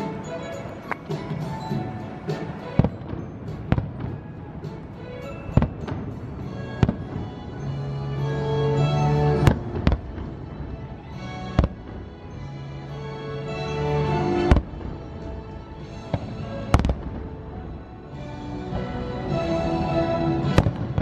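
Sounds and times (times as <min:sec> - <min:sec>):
fireworks bursting: 0:00.0 - 0:07.8, 0:08.6 - 0:12.6, 0:14.0 - 0:17.9, 0:20.4 - 0:21.0
music with long held notes: 0:00.0 - 0:21.0.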